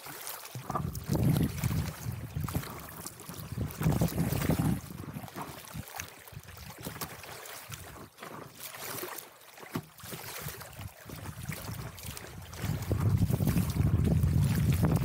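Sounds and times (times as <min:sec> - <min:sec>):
paddle splashes: 0:00.0 - 0:15.0
water splashing against paddleboard: 0:00.0 - 0:15.0
wind buffeting microphone: 0:00.6 - 0:06.6, 0:10.4 - 0:15.0.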